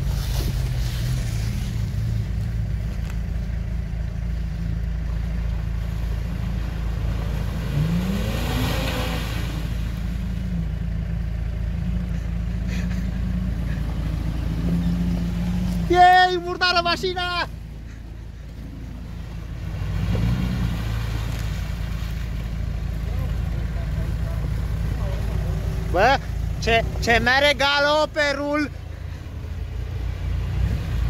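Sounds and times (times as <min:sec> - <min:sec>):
off-road engines running: 0:00.0 - 0:31.0
tyres through mud: 0:00.0 - 0:31.0
engine revving: 0:05.8 - 0:10.9, 0:11.7 - 0:22.2, 0:29.7 - 0:31.0.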